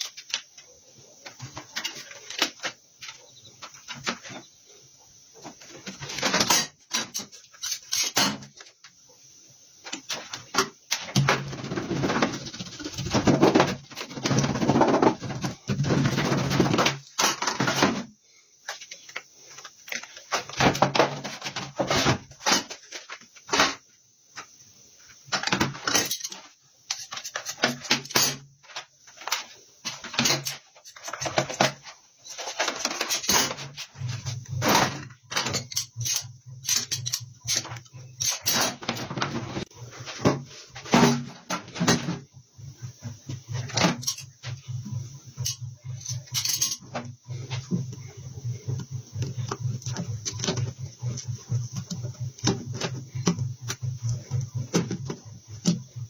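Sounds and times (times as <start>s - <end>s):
hand tools clicking and scraping: 0.0s - 4.5s, 5.4s - 8.8s, 25.4s - 42.2s, 43.6s - 44.4s, 45.4s - 48.0s.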